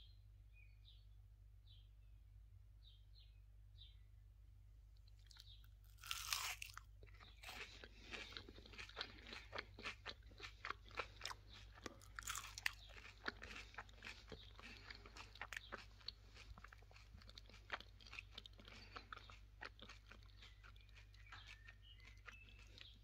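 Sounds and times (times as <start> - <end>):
crunchy chewing: 5.0 - 23.0
biting into crisp fried food: 5.1 - 23.0.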